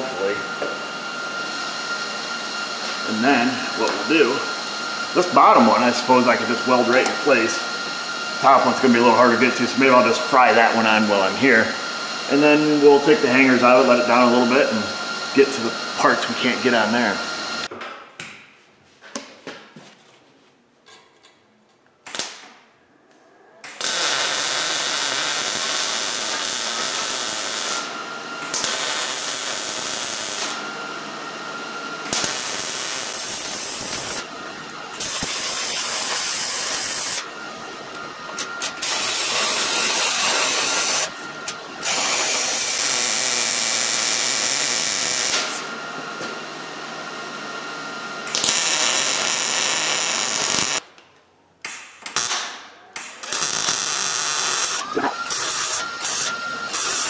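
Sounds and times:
welder arc crackling: 23.7 - 27.9, 28.5 - 30.6, 32.1 - 34.2, 34.9 - 37.2, 41.9 - 45.5, 48.3 - 50.8, 53.2 - 57.0.

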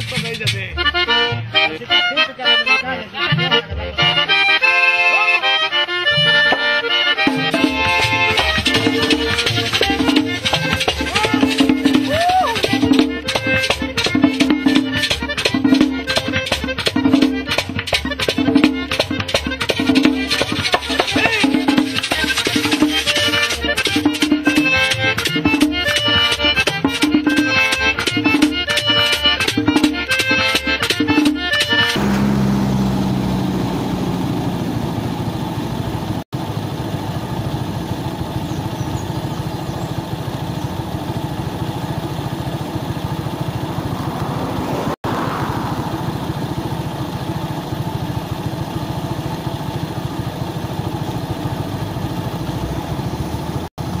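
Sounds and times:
rhythmic background music: 0.0 - 5.0, 5.7 - 32.0.

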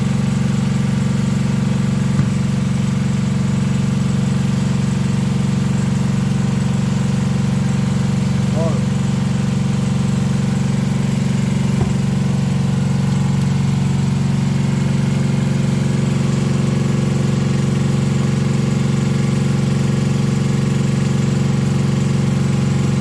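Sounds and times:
diesel engine humming: 0.0 - 4.9, 5.7 - 18.2.

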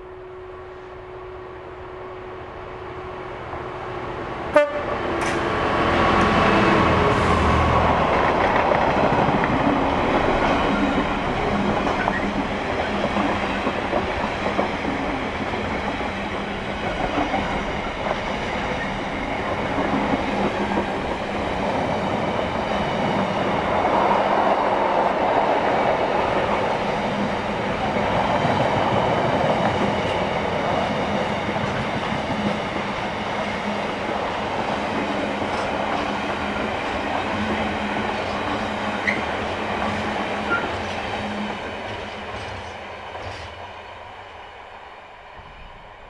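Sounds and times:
diesel locomotive passing: 0.0 - 46.0
train wheels clattering on rail joints: 5.1 - 6.4, 7.4 - 23.3, 34.5 - 43.6.

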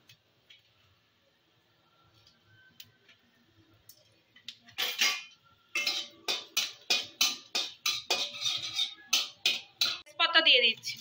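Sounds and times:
metal spatula scraping metal pan: 4.8 - 10.1.

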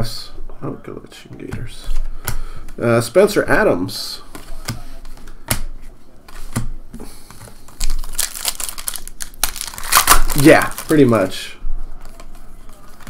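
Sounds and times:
foil pack tearing with crinkling: 7.7 - 11.4.

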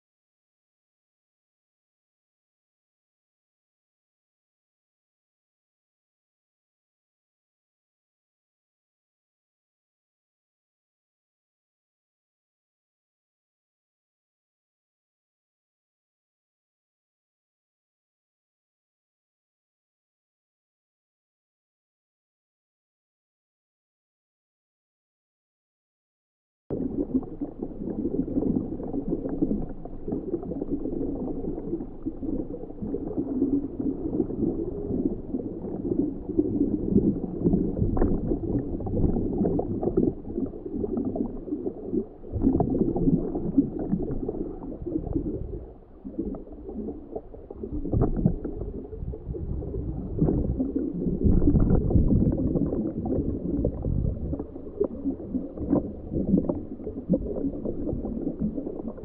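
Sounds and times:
muffled water gurgling: 26.7 - 59.0.

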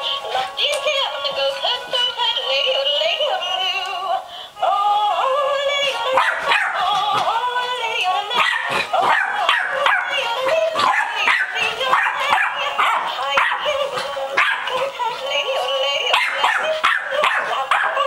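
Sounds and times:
puppy barking and yipping: 6.2 - 7.0, 8.3 - 14.9, 16.1 - 18.0.

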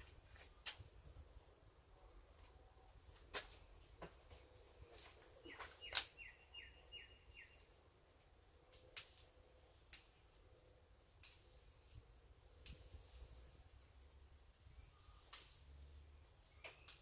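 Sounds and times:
bird chirping: 5.4 - 7.8, 16.4 - 17.0
plant stems snapping: 5.5 - 6.2, 8.7 - 10.2, 11.1 - 11.6, 12.5 - 13.0, 15.2 - 17.0.

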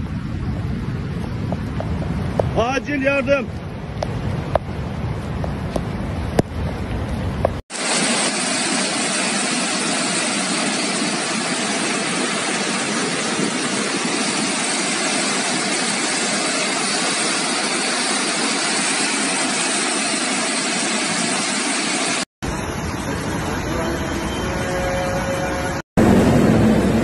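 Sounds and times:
floodwater rushing: 6.1 - 24.7.

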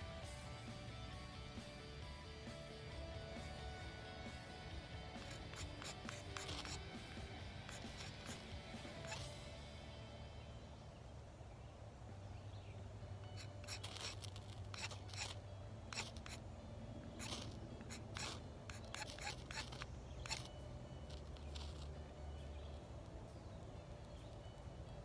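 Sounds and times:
knife scraping ferro rod: 5.2 - 9.3, 13.3 - 16.4, 17.2 - 20.5.

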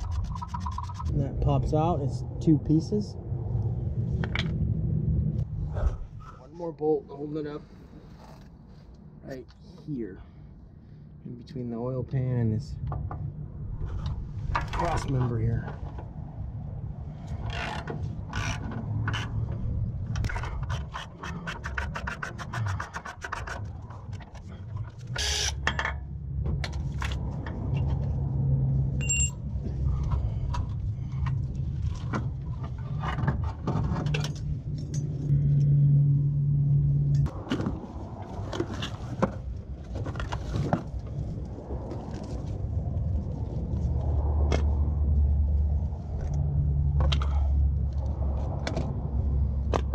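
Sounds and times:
low rumble: 0.0 - 8.0, 10.2 - 20.7, 25.8 - 49.9.

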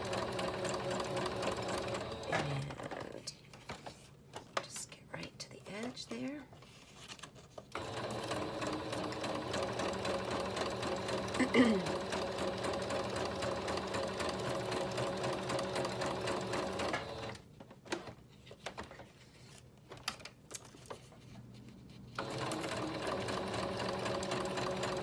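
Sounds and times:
sewing machine stitching paper: 0.0 - 3.0, 7.7 - 17.4, 22.1 - 25.0.

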